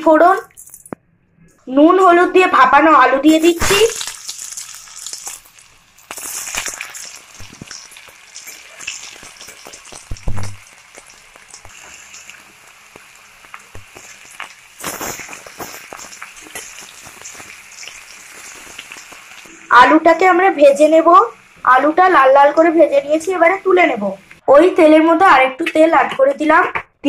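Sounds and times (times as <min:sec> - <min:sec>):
potatoes sizzling in oil: 0:02.7 - 0:26.6
spatula stirring: 0:04.2 - 0:19.3.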